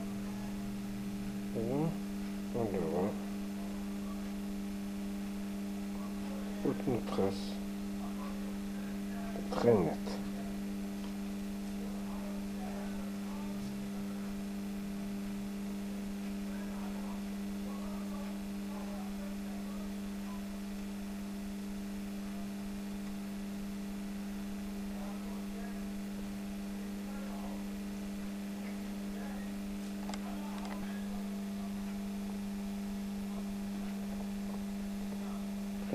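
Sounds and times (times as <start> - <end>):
electrical hum: 0.0 - 35.9.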